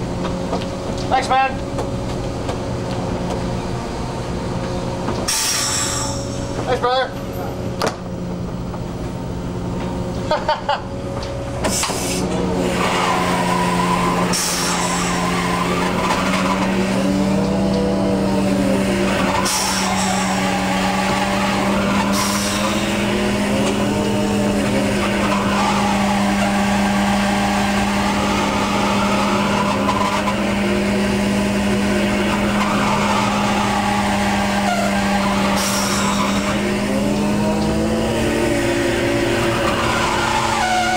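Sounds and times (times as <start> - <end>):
hydraulic hauler hum: 0.0 - 40.9
line squealing through block: 5.2 - 6.8, 11.6 - 40.9.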